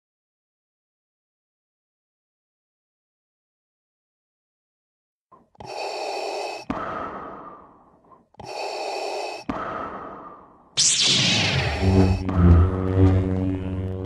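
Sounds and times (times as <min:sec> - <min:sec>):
mechanical respirator breathing: 0:05.6 - 0:10.4
loud rising sweep: 0:10.8 - 0:14.0
funk music: 0:11.4 - 0:14.0.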